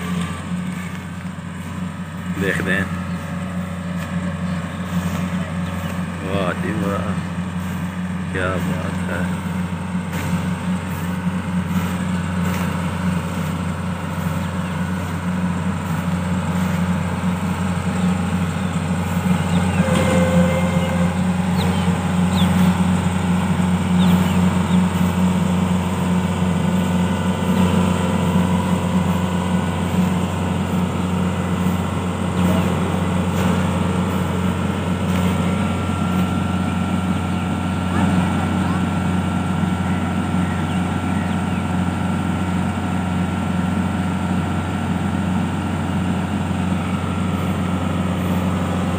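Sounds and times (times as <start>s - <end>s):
harvester engine humming: 0.0s - 48.9s.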